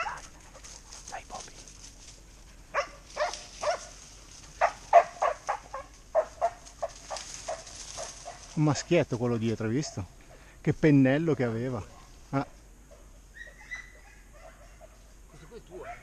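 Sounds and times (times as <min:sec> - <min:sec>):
dog yipping and whimpering: 0:13.3 - 0:14.9.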